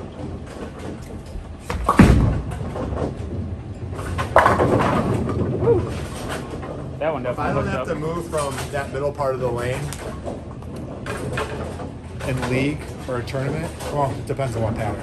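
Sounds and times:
bowling ball rolling: 0.0s - 15.0s
bowling pins clattering: 0.0s - 15.0s
bowling ball thud on lane: 1.7s - 3.4s.

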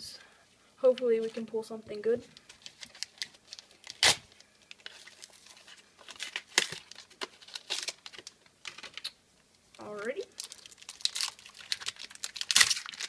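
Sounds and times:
foil wrapper crinkling and tearing: 2.4s - 9.2s, 10.3s - 13.0s.

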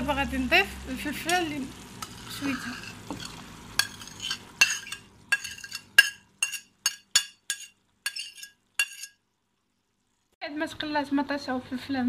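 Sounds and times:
faint frying sizzle: 0.0s - 12.0s
spoon clinking on ceramic plate: 2.6s - 9.2s.

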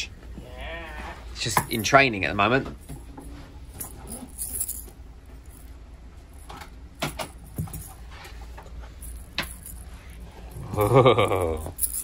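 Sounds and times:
low hum: 2.8s - 12.0s.

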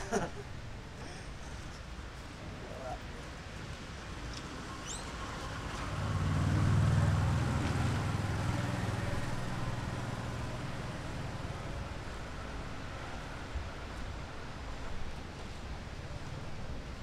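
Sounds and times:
passing vehicle engine hum: 4.5s - 14.6s.

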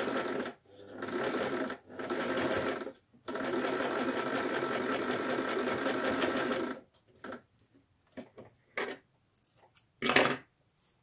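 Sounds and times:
electric sewing machine stitching: 0.0s - 7.4s.

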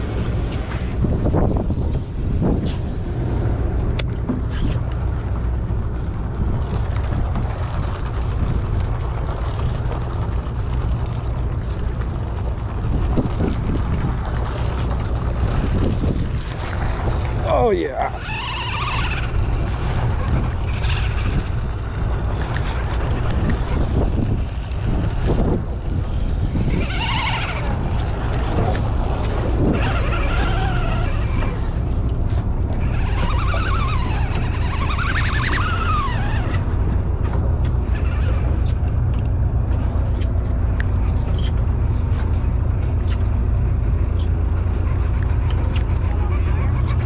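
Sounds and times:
boat engine drone: 0.0s - 47.0s
wind on microphone: 0.0s - 47.0s
faint rising and falling calls: 32.8s - 36.7s.

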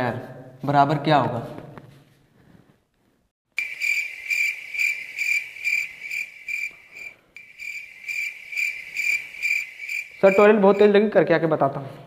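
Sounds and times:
cricket chirping: 3.6s - 11.0s.

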